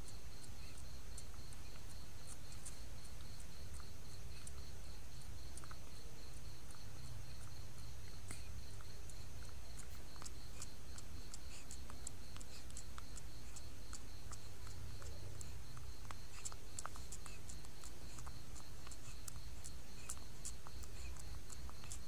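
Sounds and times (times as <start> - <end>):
baby monkey lip clicks: 0.0 - 22.0
steady low hum: 0.0 - 22.0.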